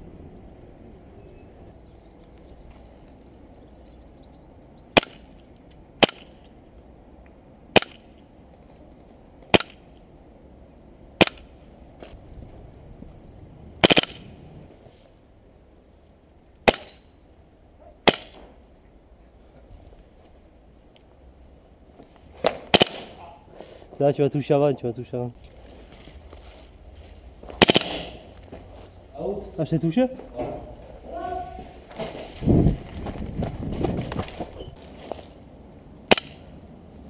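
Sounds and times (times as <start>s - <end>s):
airsoft pistol shots: 4.9s - 5.3s, 6.0s - 6.4s, 7.7s - 8.1s, 9.5s - 9.8s, 11.2s - 11.5s, 13.8s - 14.3s, 16.6s - 17.1s, 18.0s - 18.5s, 22.4s - 23.2s, 27.6s - 28.3s, 36.1s - 36.5s.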